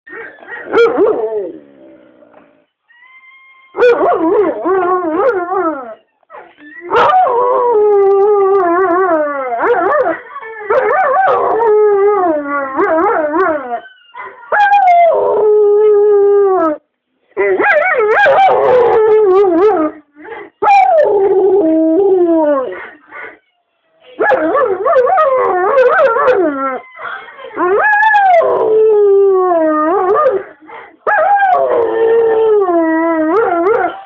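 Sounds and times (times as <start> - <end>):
recorded dog howling: 3.0 - 16.8, 31.0 - 34.0.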